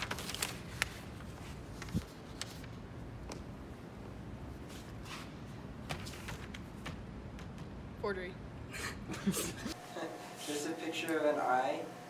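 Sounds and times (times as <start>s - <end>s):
paper tapping and rustling: 0.0s - 3.4s, 5.9s - 7.7s.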